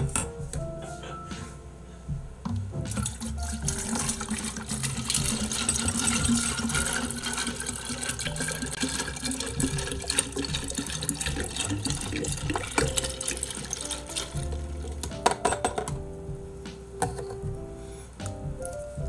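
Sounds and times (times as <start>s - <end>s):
liquid pouring into metal tumbler: 2.9s - 15.0s.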